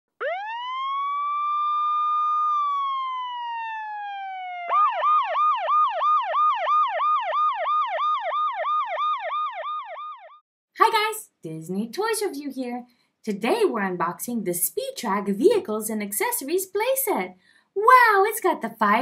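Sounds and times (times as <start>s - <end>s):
emergency siren wailing and yelping: 0.2s - 10.4s.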